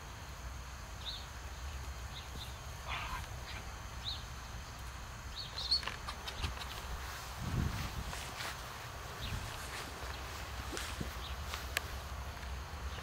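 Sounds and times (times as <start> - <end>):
high bird chirps: 5.3 - 6.8.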